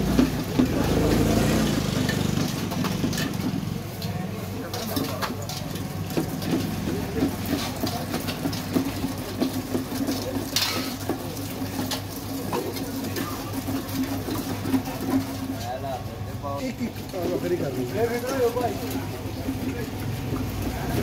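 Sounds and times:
wet sloshing and knocking on metal: 0.0s - 21.0s.

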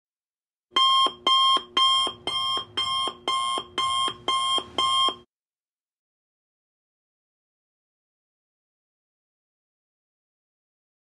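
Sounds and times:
electronic timer alarm beeping: 0.8s - 5.3s.

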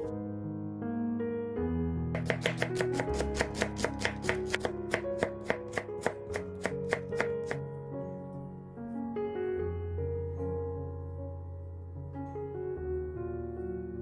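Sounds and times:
soft background music: 0.0s - 14.0s
knife chopping on wooden board: 2.2s - 7.6s.

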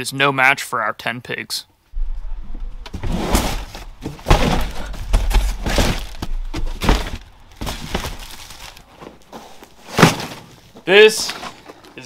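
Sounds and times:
low rumble: 1.9s - 7.6s
boxes thudding and knocking: 2.0s - 11.8s.

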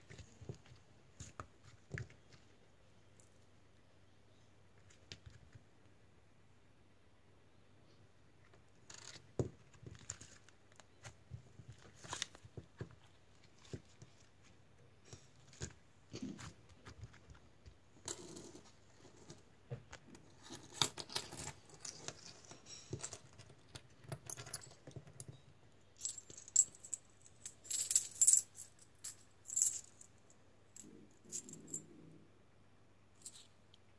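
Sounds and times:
coins clinking: 26.0s - 30.1s, 30.8s - 31.8s, 33.2s - 33.5s.

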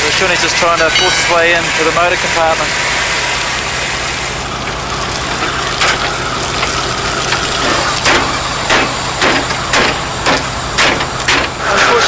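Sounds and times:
fire engine pump humming: 0.0s - 12.0s
water spraying from a hose: 0.0s - 12.0s
knocks: 7.6s - 11.6s.

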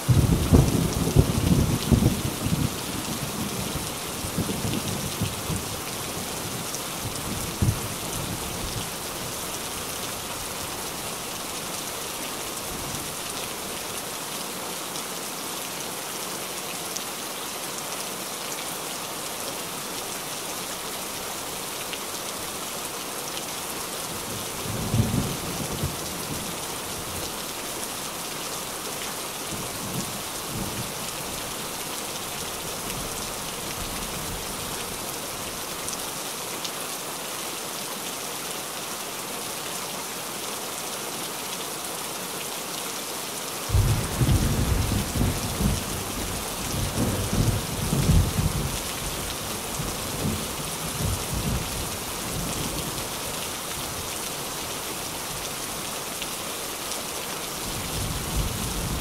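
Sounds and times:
heavy rain on a tin roof: 0.0s - 59.0s
thunder rumbling: 43.7s - 48.8s.

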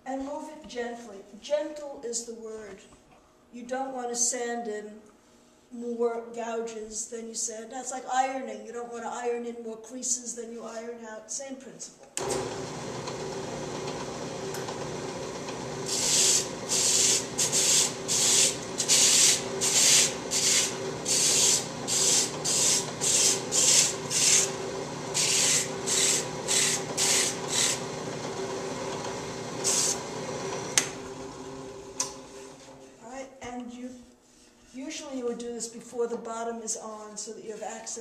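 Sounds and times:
drill press motor hum: 12.2s - 32.9s
wood sanding strokes: 15.6s - 27.9s, 29.5s - 30.7s.

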